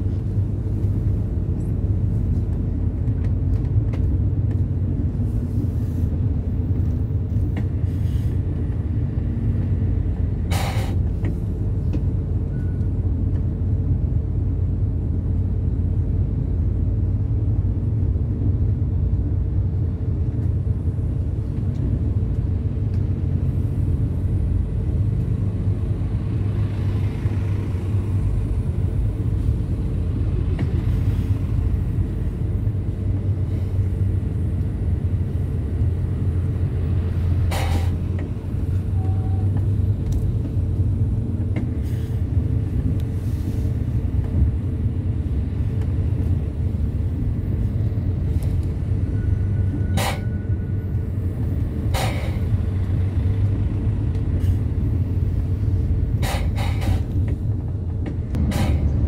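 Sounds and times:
vehicle engine and road noise: 0.0 - 59.0.

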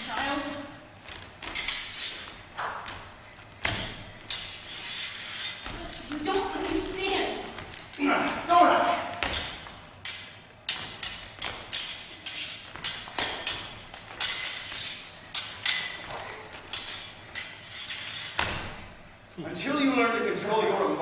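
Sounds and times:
sword blades clashing: 1.5 - 2.4, 3.6 - 6.8, 9.3 - 18.6.

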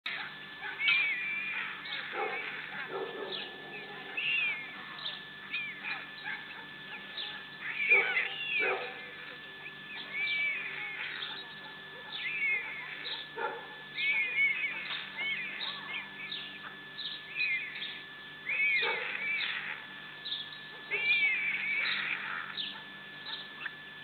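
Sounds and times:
faint electrical whine: 0.1 - 24.0
harsh bird cries: 0.1 - 24.0
bird chirps and whistles: 0.8 - 2.2, 3.3 - 6.4, 9.7 - 13.2, 14.0 - 23.7.

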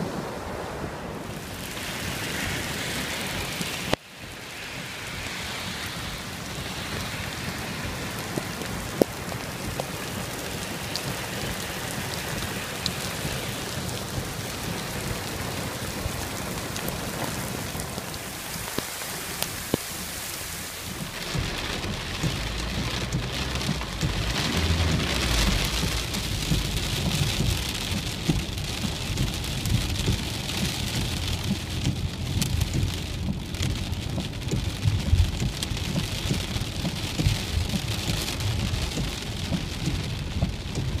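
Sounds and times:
heavy pounding rain: 0.0 - 41.0
low thunder rumble: 20.8 - 36.6.

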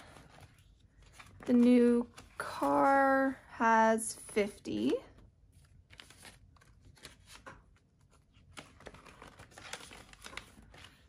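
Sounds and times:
paper banknotes rustling: 5.6 - 11.0.

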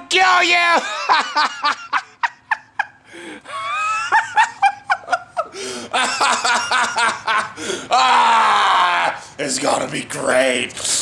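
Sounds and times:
man laughing: 0.5 - 9.3.

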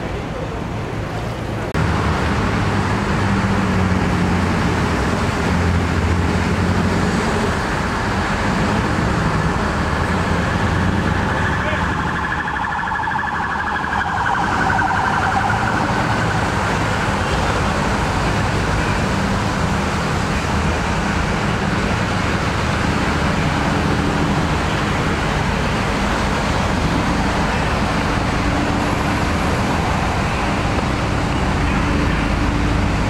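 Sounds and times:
wavering siren: 10.5 - 17.6.

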